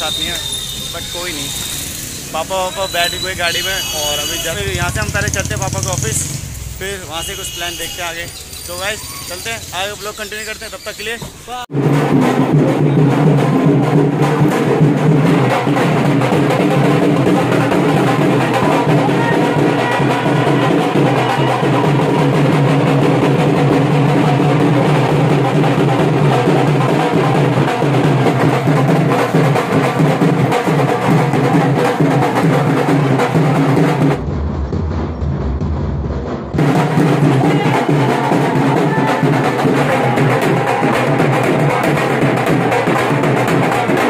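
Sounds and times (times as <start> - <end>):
dance music with heavy drumming: 11.7 - 44.0.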